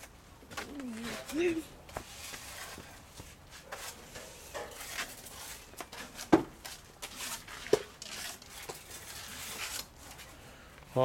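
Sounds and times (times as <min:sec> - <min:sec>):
spatula scraping adhesive: 0:03.6 - 0:10.3.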